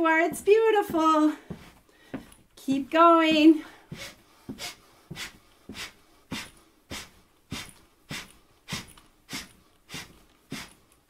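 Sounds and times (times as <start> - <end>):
person breathing out hard: 3.6 - 10.8.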